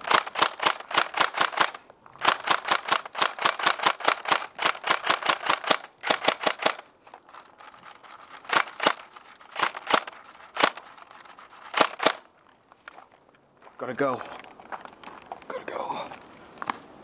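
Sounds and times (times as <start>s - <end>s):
airsoft rifle firing rapid shots: 0.0s - 6.8s, 8.4s - 10.9s, 11.6s - 12.3s.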